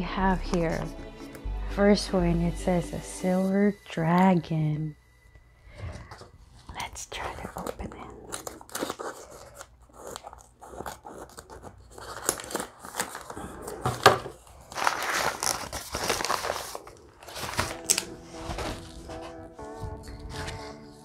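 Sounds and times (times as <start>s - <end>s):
background music: 0.0s - 6.1s, 17.2s - 21.0s
paper crinkling and tearing: 7.2s - 21.0s
scissors snipping paper: 7.5s - 13.4s.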